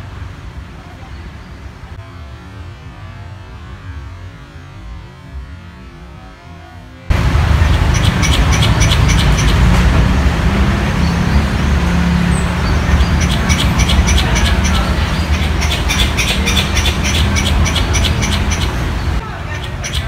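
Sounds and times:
low rumble of city traffic: 0.0s - 20.0s
squirrel chattering calls: 7.2s - 9.8s, 12.3s - 20.0s.

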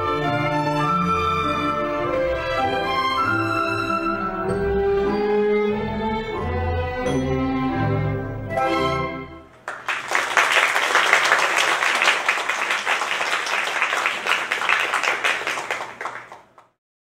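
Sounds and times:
orchestral music: 0.0s - 9.5s
audience applauding: 9.6s - 16.8s.

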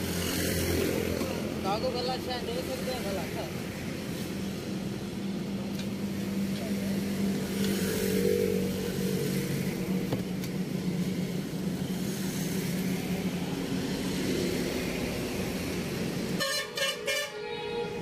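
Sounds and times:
car horn: 16.4s - 18.0s.

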